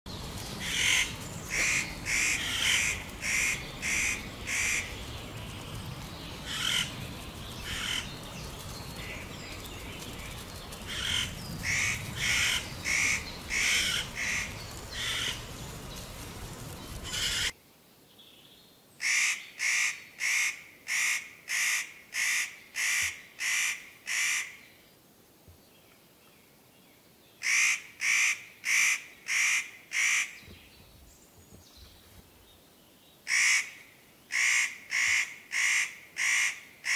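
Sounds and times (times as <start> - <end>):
low background rumble: 0.1 - 17.5
bird harsh rasping screeches: 0.7 - 5.0, 6.5 - 7.0, 10.9 - 15.4, 17.0 - 17.5.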